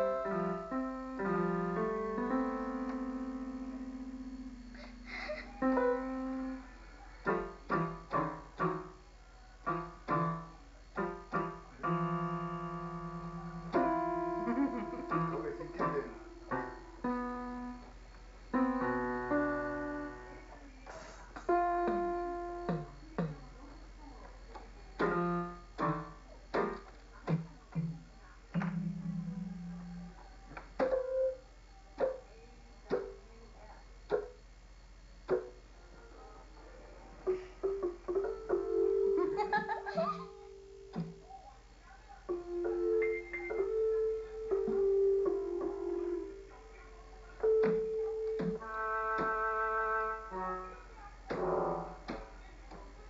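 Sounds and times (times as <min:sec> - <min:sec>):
electronic keyboard notes slapped: 0:21.8 - 0:23.4, 0:25.0 - 0:25.2, 0:25.8 - 0:29.7, 0:30.8 - 0:31.1, 0:32.9 - 0:33.2, 0:34.1 - 0:34.4, 0:35.2 - 0:35.6, 0:40.9 - 0:41.2, 0:47.5 - 0:49.4, 0:51.3 - 0:52.3.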